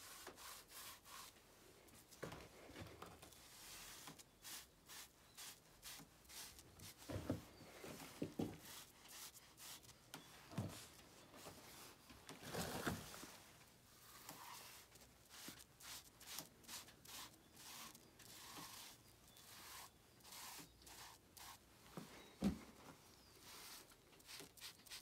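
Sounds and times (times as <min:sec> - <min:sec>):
marker tip rubbing on rough wall: 0:14.1 - 0:21.6.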